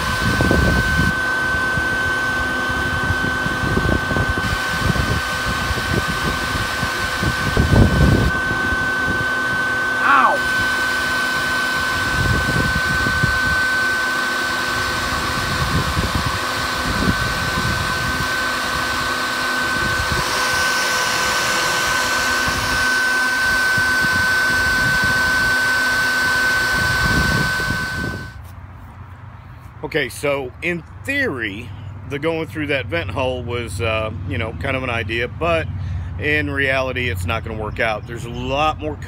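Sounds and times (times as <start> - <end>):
bee vacuum motor whine: 0.0 - 28.4.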